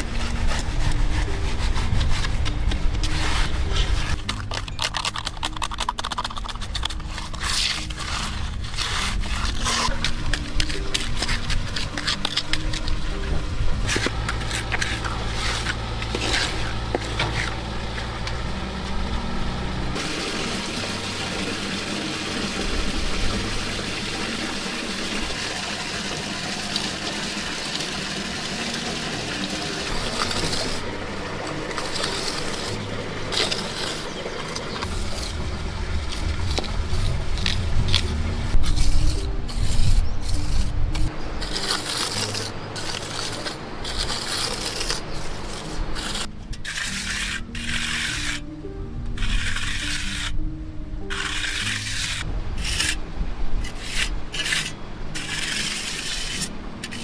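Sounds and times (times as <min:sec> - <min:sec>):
trowel scraping wet concrete: 0:00.0 - 0:13.2, 0:13.8 - 0:18.1, 0:20.0 - 0:35.4, 0:36.0 - 0:48.5, 0:49.2 - 0:50.4, 0:51.0 - 0:53.0, 0:53.6 - 0:57.0
low machine hum: 0:12.6 - 0:44.1.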